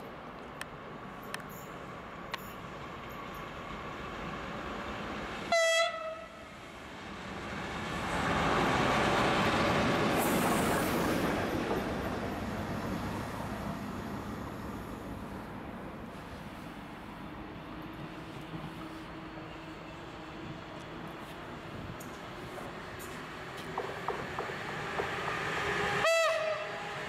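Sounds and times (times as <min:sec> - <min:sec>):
diesel locomotive engines: 0:00.0 - 0:27.0
train wheels on rail: 0:00.0 - 0:27.0
locomotive horn blast: 0:05.5 - 0:06.4, 0:26.0 - 0:26.9.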